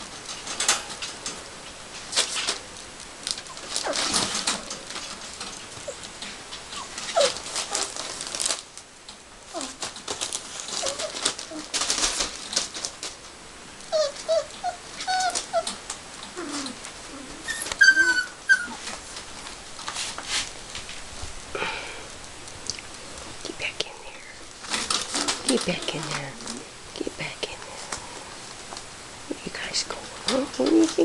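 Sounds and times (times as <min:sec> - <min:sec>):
paws scratching on newspaper: 0:02.0 - 0:08.8, 0:09.5 - 0:13.2, 0:13.9 - 0:21.0
puppies whimpering: 0:05.8 - 0:06.1, 0:06.7 - 0:07.9, 0:13.9 - 0:15.8, 0:16.4 - 0:18.9
puppy squealing: 0:06.8 - 0:07.9, 0:13.9 - 0:15.8, 0:16.4 - 0:18.9.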